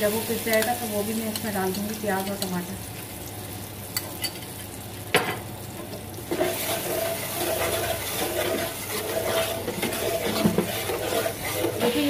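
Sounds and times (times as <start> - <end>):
spice paste sizzling in oil: 0.0 - 12.0
spatula scraping pan: 6.2 - 12.0.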